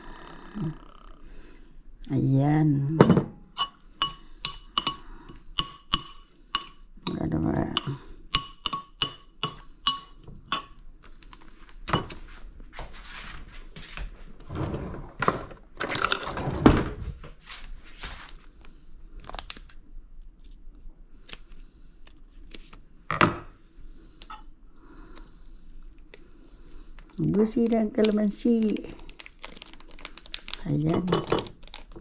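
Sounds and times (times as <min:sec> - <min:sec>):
dishes clinking: 0:03.0 - 0:05.0.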